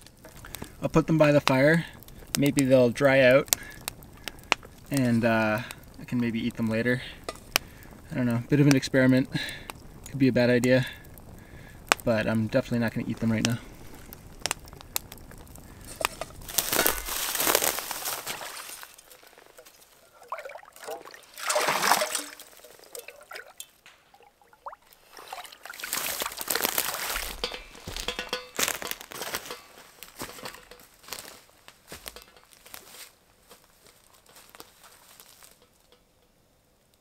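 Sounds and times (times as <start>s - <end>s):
water splashing and sloshing: 17.1s - 28.9s.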